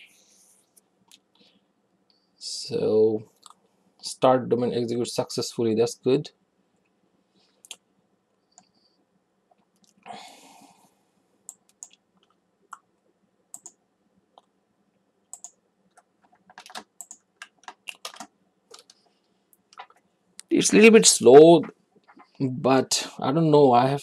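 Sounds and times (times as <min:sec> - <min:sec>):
keyboard and mouse clicks: 0:11.5 - 0:12.9, 0:13.5 - 0:13.8, 0:15.3 - 0:20.5.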